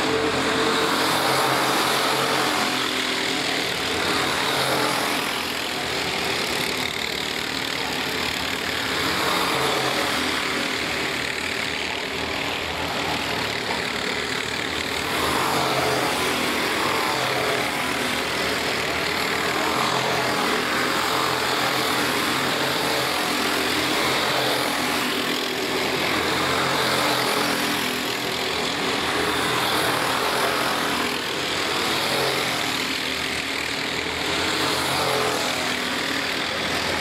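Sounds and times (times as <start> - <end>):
racing kart engines: 0.0 - 37.0.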